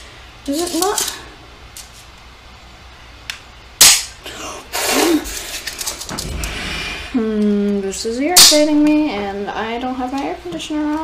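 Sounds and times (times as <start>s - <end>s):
handling noise: 5.3s - 7.2s.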